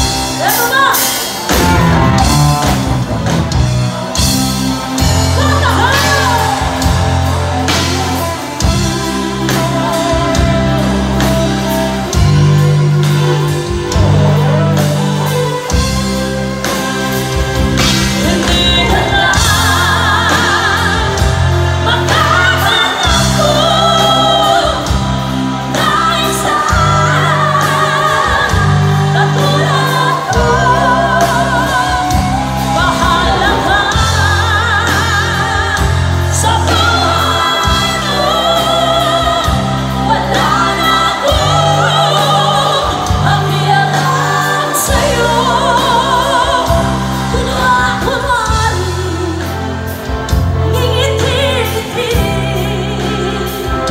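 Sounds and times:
live band playing: 0:00.0 - 0:53.9
heavy bass line: 0:01.4 - 0:23.9
women singing with vibrato: 0:03.9 - 0:53.9.

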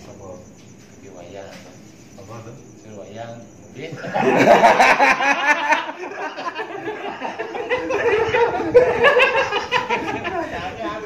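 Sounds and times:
men laughing: 0:03.9 - 0:11.0.

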